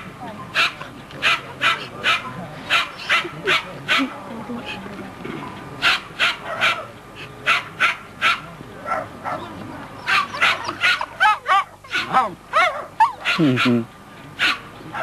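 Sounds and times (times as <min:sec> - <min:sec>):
dogs barking: 0:00.5 - 0:04.2, 0:05.8 - 0:15.0
dog yipping: 0:07.5 - 0:13.7.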